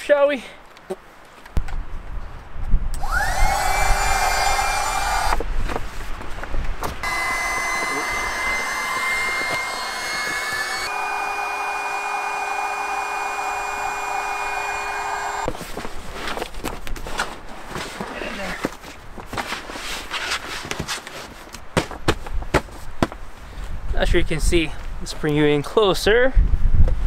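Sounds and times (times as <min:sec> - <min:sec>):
electric air pump whining: 0:03.0 - 0:05.4, 0:07.0 - 0:15.5.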